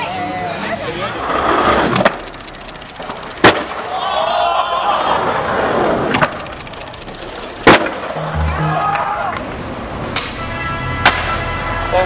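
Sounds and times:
skateboard wheels rolling on concrete: 0.0 - 12.0
skateboard cracking: 1.0 - 2.3, 3.0 - 8.3.

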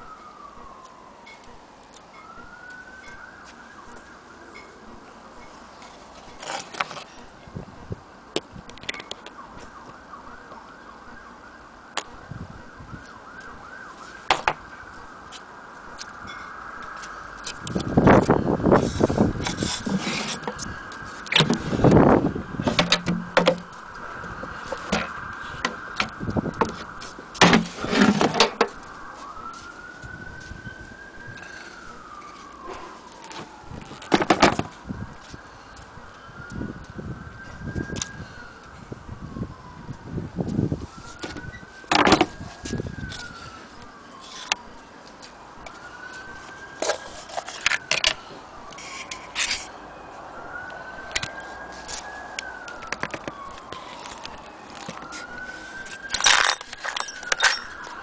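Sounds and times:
distant siren wailing: 0.0 - 58.0.

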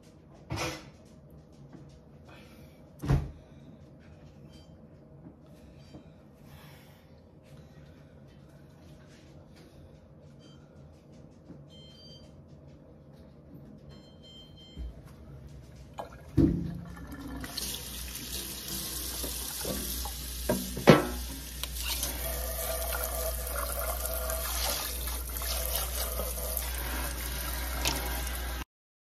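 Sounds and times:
faucet water running into sink: 16.0 - 28.6
metal pan clanking against sink: 20.5 - 21.2.

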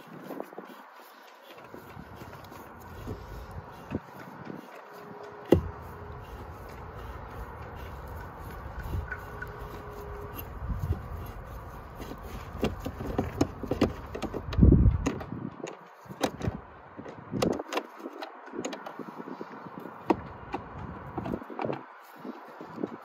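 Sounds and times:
dull thump: 5.5 - 5.8.

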